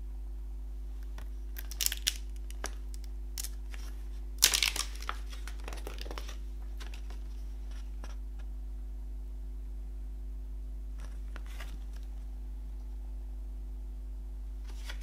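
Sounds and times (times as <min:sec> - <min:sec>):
steady low hum: 0:00.0 - 0:15.0
paper crinkle: 0:01.5 - 0:08.2, 0:11.0 - 0:12.2, 0:14.6 - 0:15.0
paper booklet rustling: 0:03.4 - 0:08.5, 0:11.0 - 0:12.2, 0:14.6 - 0:15.0.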